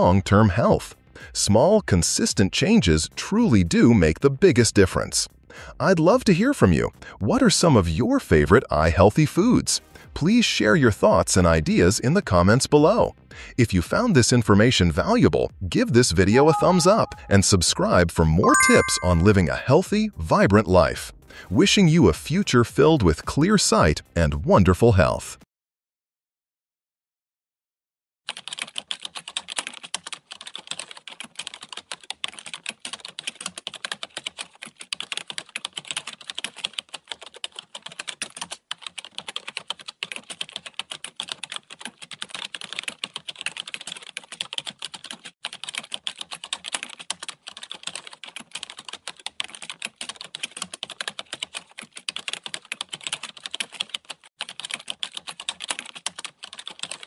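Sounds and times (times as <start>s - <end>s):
keyboard typing clicks: 16.4s - 17.3s, 18.4s - 19.3s.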